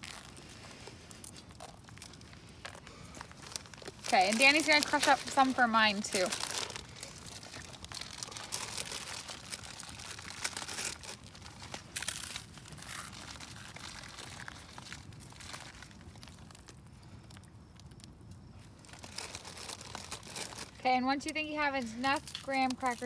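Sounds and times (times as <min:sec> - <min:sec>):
crackers crunching by hand: 0:00.0 - 0:23.0.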